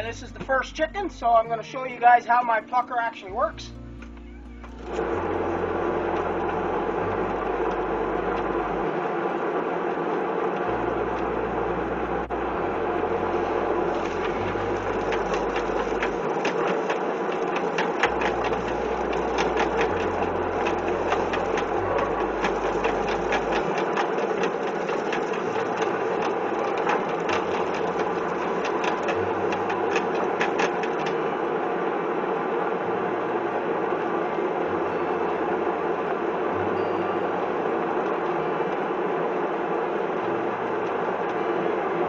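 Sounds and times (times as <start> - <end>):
electric motor hum: 3.8 - 42.0
rapid irregular slapping: 13.6 - 31.3.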